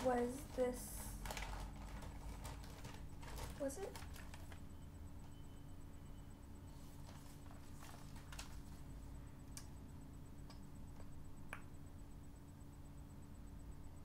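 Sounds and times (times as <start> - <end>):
plastic bag rustling: 0.0 - 4.7, 6.7 - 9.0
steady low hum: 0.0 - 14.0.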